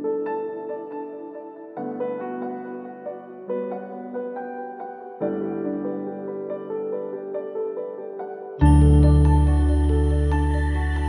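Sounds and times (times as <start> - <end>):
slow keyboard chords: 8.3 - 11.0.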